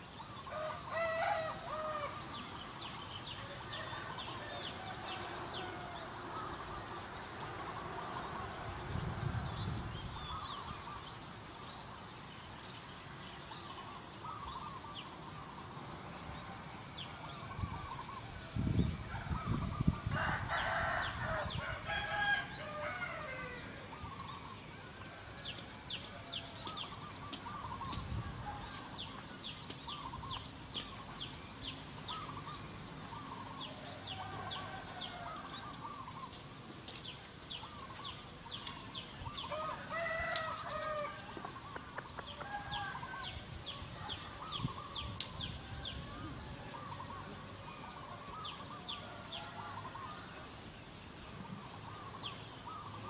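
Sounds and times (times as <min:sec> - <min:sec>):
small birds chirping: 0:00.0 - 0:53.0
chickens clucking: 0:39.5 - 0:42.5.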